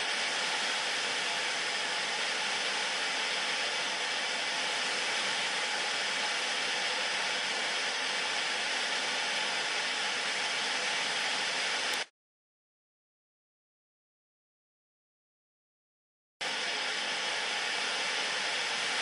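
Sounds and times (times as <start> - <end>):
television static hiss: 0.0 - 12.0.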